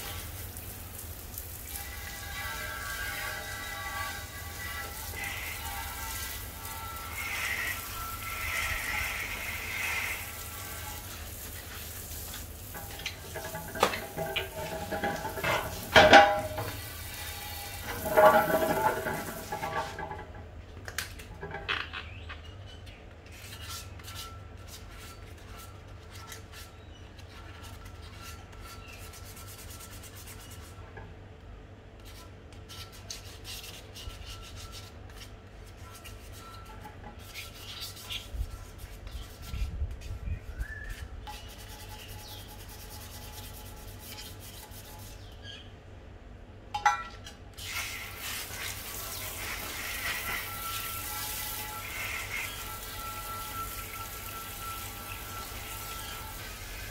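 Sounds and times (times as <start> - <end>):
hose spray splashing on wheel rim: 0.0 - 20.2, 47.6 - 56.9
hands rubbing wet rim: 7.2 - 17.0, 17.8 - 20.2, 40.9 - 45.4.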